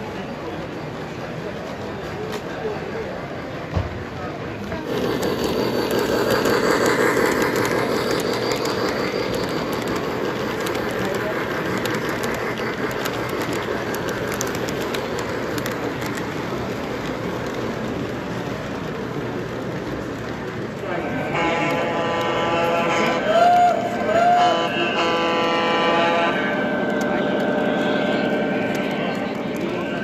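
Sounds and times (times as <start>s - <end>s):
model train rumbling past: 0.0s - 30.0s
wheels clicking over rail joints: 4.6s - 22.4s.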